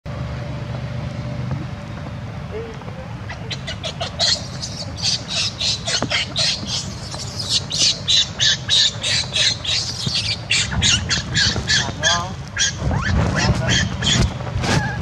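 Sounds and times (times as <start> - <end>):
baby monkey screeching: 3.3 - 15.0.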